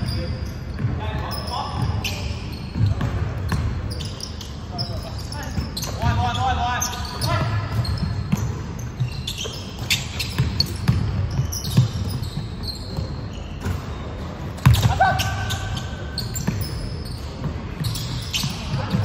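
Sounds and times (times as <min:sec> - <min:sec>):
shoes squeaking on court: 0:00.0 - 0:19.0
basketball bouncing: 0:07.6 - 0:15.4.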